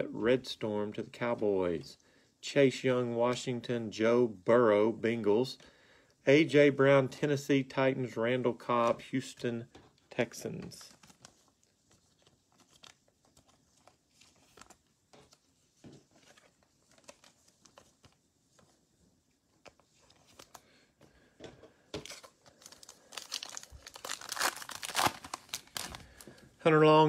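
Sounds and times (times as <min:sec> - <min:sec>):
trading cards clicking and rustling: 0:09.8 - 0:18.7, 0:22.0 - 0:26.0
card pack wrapper tearing: 0:22.0 - 0:26.2.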